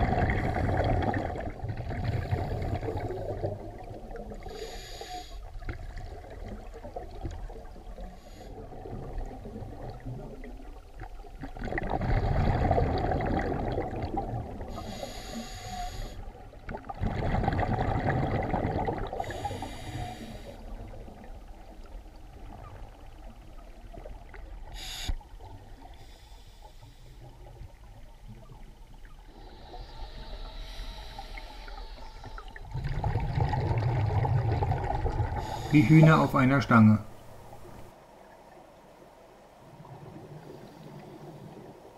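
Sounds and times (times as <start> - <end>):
exhaled bubbles underwater: 0.0 - 26.1, 26.8 - 36.5
regulator hissing inhalations: 4.4 - 5.5, 14.7 - 16.3, 19.2 - 20.7, 24.7 - 25.2, 26.0 - 27.3, 29.4 - 32.5, 35.4 - 36.2.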